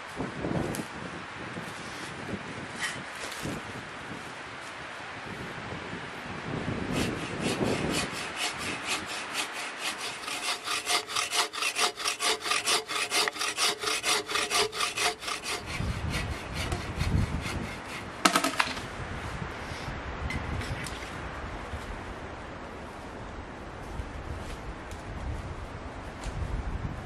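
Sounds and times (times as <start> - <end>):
hand saw cutting wood: 6.9 - 18.8.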